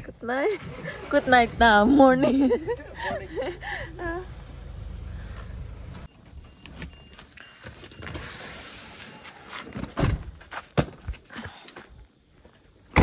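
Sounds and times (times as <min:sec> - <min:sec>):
low car rumble: 0:00.0 - 0:06.6
faint short beeps: 0:06.1 - 0:08.3.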